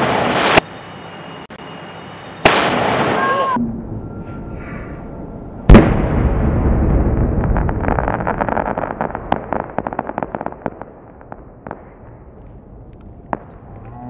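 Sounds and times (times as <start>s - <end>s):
firework crackling pops: 7.4s - 13.6s.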